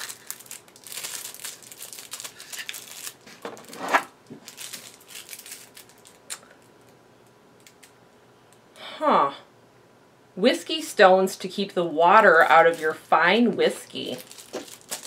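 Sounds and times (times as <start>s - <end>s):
paper packaging rustling: 0.0s - 6.2s, 14.0s - 15.0s.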